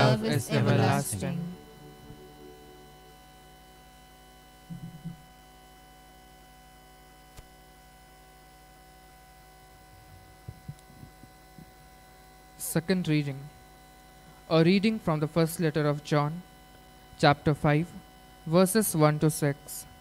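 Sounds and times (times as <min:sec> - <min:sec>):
faint electrical mains hum: 0:00.0 - 0:20.0
brief low sound: 0:04.7 - 0:05.3.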